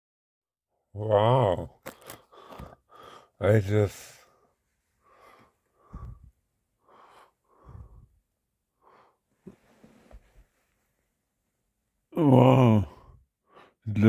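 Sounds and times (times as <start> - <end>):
person breathing wheezily: 1.8 - 3.4, 4.2 - 9.3.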